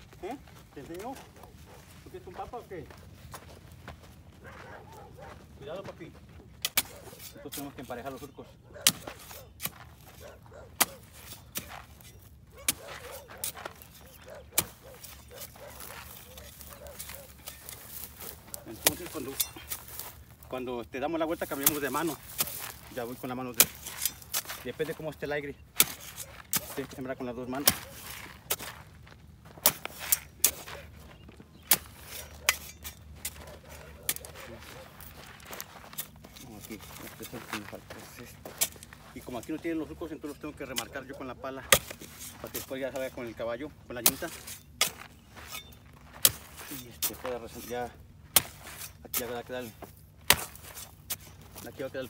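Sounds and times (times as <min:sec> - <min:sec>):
shovel chopping into hard soil: 0:06.6 - 0:10.2, 0:10.8 - 0:20.2, 0:21.3 - 0:28.9, 0:29.5 - 0:30.8, 0:31.6 - 0:39.8, 0:41.6 - 0:43.3, 0:43.9 - 0:52.0.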